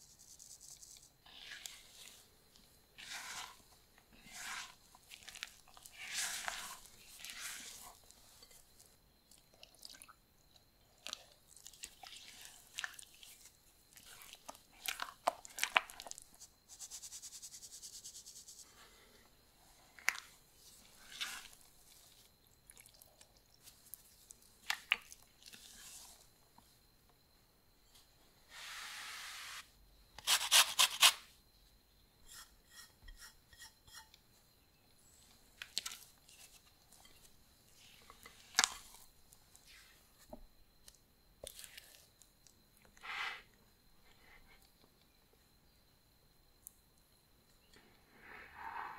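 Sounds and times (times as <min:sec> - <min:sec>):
spatula squelching in batter: 0:01.2 - 0:02.2, 0:03.0 - 0:08.8, 0:11.0 - 0:16.5.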